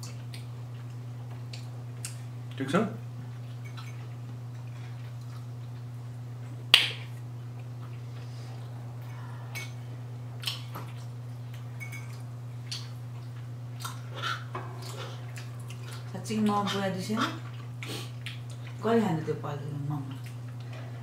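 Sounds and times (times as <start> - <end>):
steady low hum: 0.0 - 21.0
chewing: 3.3 - 5.9, 7.4 - 9.2, 10.4 - 18.8, 20.1 - 20.8.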